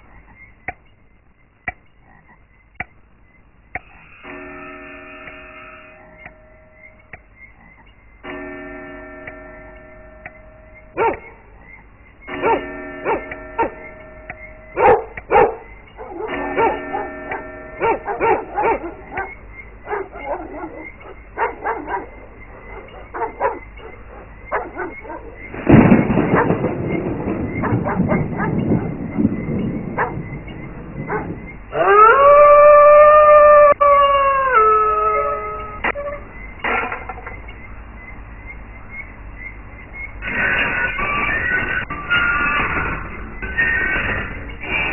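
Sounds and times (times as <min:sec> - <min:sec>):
eerie soundtrack tones and hits: 0:03.7 - 0:32.4, 0:35.3 - 0:44.9
dog barking: 0:10.9 - 0:11.4, 0:12.3 - 0:13.9, 0:14.7 - 0:25.4, 0:26.2 - 0:26.6, 0:27.6 - 0:29.0, 0:29.9 - 0:30.3, 0:31.0 - 0:31.4
dog howling: 0:14.8 - 0:25.4, 0:31.1 - 0:36.2.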